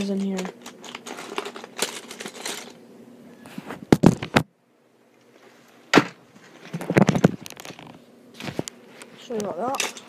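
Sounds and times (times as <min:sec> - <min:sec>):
hard objects clicking and knocking: 0:00.0 - 0:02.8.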